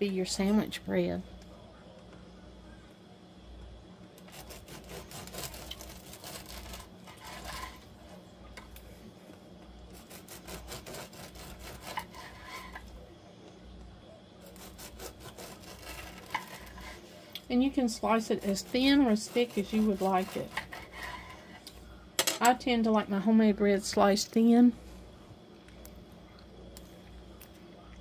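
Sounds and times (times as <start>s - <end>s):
bread knife sawing through bread: 4.2s - 7.9s, 10.0s - 12.8s, 14.4s - 17.2s, 17.8s - 21.6s.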